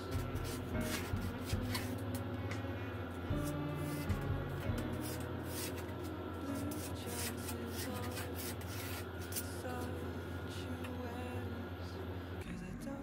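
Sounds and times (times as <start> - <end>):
steady low hum: 0.0 - 13.0
pencil scratching on wall: 4.8 - 9.5.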